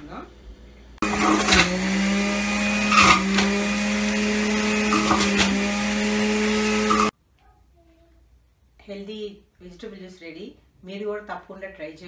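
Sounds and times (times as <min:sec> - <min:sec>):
juicer motor humming: 0:01.0 - 0:07.1.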